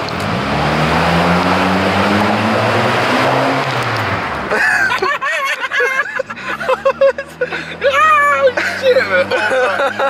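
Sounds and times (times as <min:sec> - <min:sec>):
car engine revving raspy exhaust: 0:00.0 - 0:05.0, 0:06.2 - 0:10.0
excited shouting: 0:07.8 - 0:09.5.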